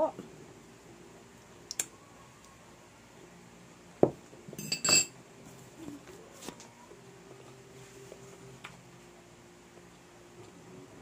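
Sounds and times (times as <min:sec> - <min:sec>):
metal fork clinking on plate: 0:04.6 - 0:05.1.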